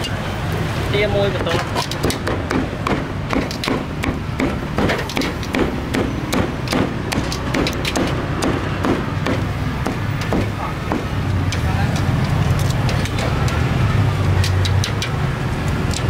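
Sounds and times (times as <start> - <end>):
cleaver chopping on wooden block: 1.5 - 11.3.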